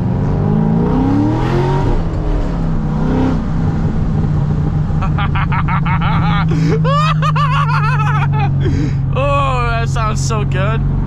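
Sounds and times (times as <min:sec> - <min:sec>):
car engine revving from cabin: 0:00.0 - 0:04.9.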